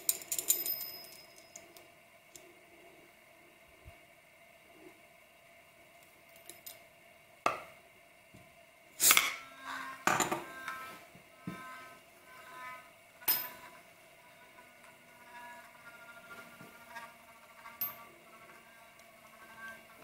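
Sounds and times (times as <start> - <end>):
small metal objects clinking: 0.0 - 1.8.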